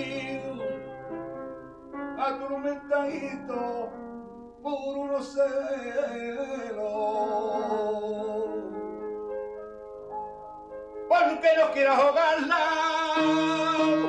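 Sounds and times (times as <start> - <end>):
man singing melismatic line: 0.0 - 1.0, 2.1 - 4.0, 4.6 - 8.8, 11.1 - 14.0
instrumental accompaniment: 0.0 - 14.0.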